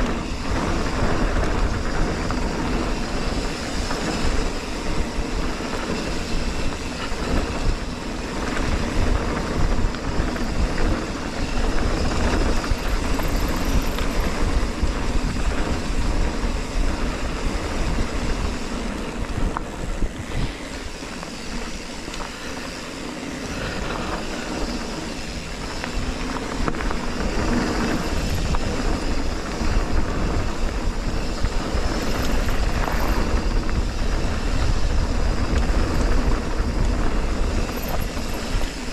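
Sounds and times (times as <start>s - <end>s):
bike tyres clattering and rattling: 0.0s - 38.9s
wind buffeting microphone: 0.0s - 38.9s.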